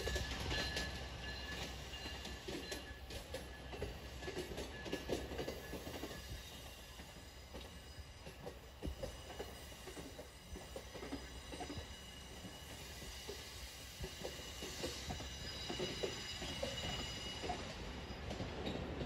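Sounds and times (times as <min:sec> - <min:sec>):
wheels clicking over rail joints: 0:00.0 - 0:06.3
train coaches rumbling past: 0:00.0 - 0:19.0.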